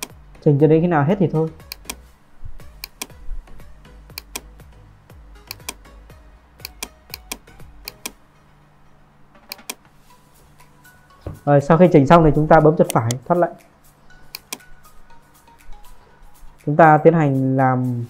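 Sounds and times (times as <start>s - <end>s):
mouse and keyboard clicking: 1.6s - 2.0s, 2.8s - 3.2s, 4.1s - 4.5s, 5.4s - 5.8s, 6.6s - 8.2s, 9.5s - 9.8s, 14.4s - 14.7s.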